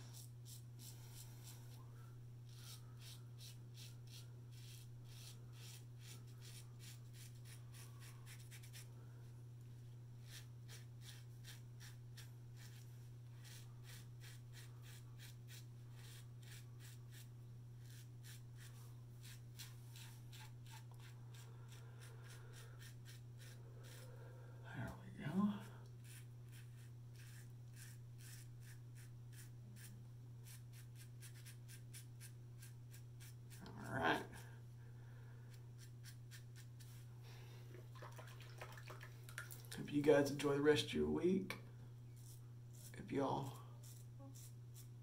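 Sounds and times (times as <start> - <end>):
steady low hum: 0.0 - 45.0
razor scraping stubble: 2.5 - 8.9, 10.2 - 24.1, 25.9 - 34.4, 35.7 - 37.0, 42.2 - 45.0.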